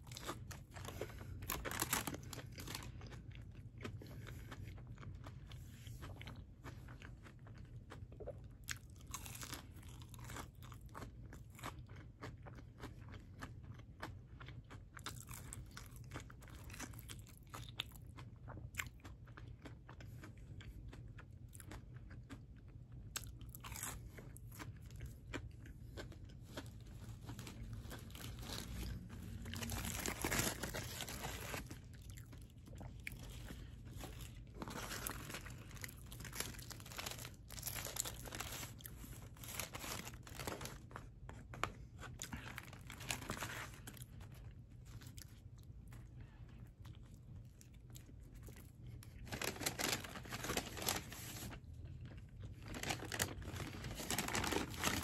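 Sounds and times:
chewing and crunching food: 0.0s - 55.0s
paper wrapper rustling: 0.8s - 2.9s, 27.3s - 31.8s, 34.6s - 40.8s, 42.6s - 43.8s, 49.2s - 51.6s, 52.6s - 55.0s.

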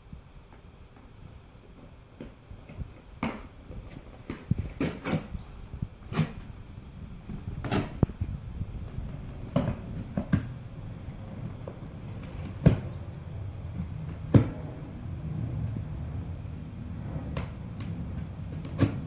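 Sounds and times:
dog chewing and tearing cardboard: 3.2s - 5.4s, 6.0s - 6.5s, 7.3s - 8.3s.

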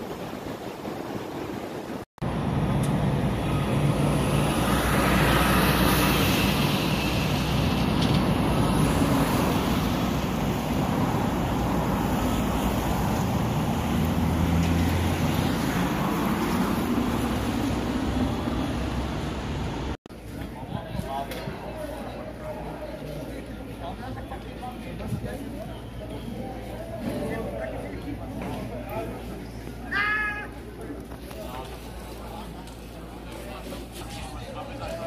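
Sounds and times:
street traffic: 2.2s - 35.0s
vehicle passing: 2.4s - 20.0s.

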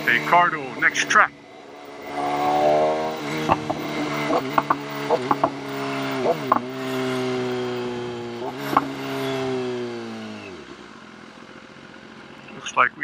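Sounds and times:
motorcycle engine cruising: 0.0s - 13.0s
sharp clicks and knocks: 3.4s - 5.6s, 6.3s - 6.7s, 8.6s - 8.9s.

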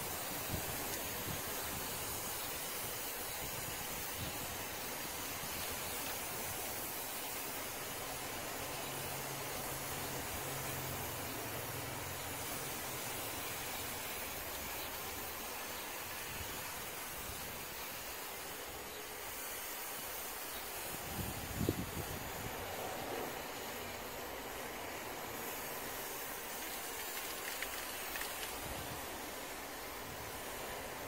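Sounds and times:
spray paint can hissing: 0.0s - 31.0s.

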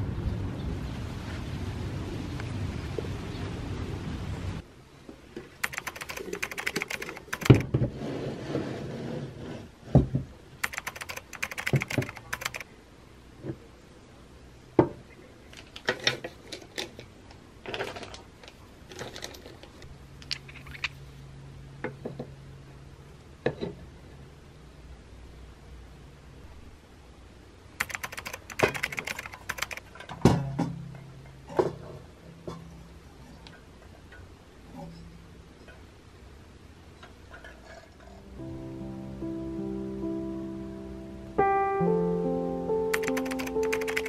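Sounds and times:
wooden shelf scraping and clattering: 7.8s - 9.7s.

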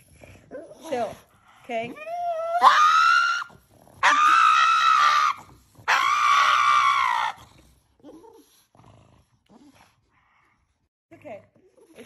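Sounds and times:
dog screaming: 2.2s - 7.4s.

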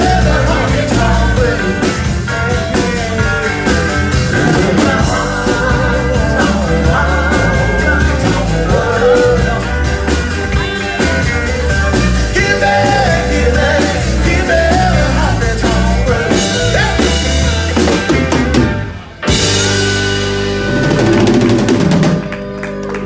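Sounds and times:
live rock band playing: 0.0s - 23.0s.

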